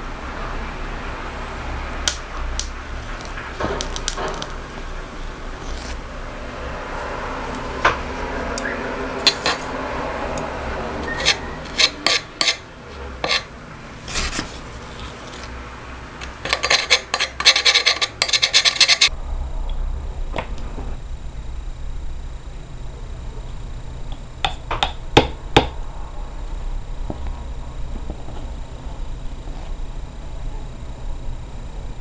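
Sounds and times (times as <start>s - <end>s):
tweezers scraping over cardboard: 5.6s - 6.0s, 11.0s - 12.6s, 13.2s - 15.5s, 16.4s - 19.1s.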